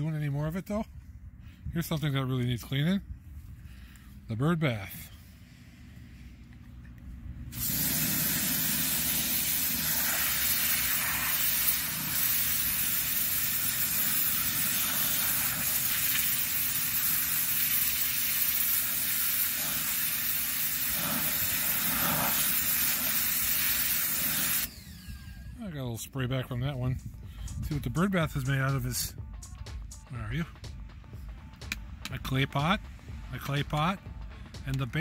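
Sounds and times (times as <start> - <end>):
low motor hum: 5.1 - 10.1, 24.5 - 28.4, 30.6 - 35.0
pressure washer spray hissing: 7.5 - 24.8.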